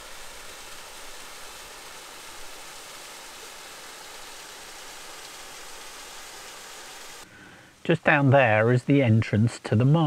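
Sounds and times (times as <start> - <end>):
waterfall rushing into pool: 0.0 - 7.5.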